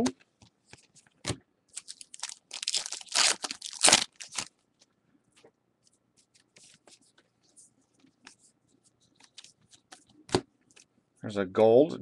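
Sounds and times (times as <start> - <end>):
wrapper tearing and crinkling: 1.7 - 4.5.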